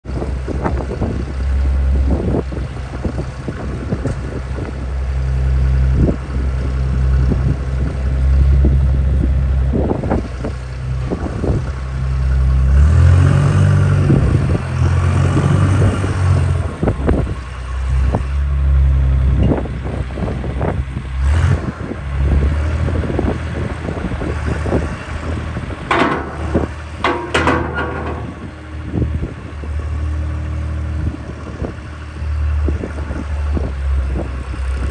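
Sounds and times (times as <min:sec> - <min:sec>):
wheel loader diesel engine: 0:00.0 - 0:34.9
loader bucket clanks: 0:25.7 - 0:28.9.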